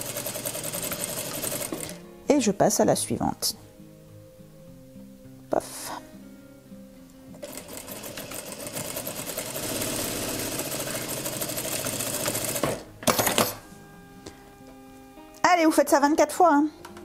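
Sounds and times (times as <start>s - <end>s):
sewing machine stitching: 7.4s - 13.4s.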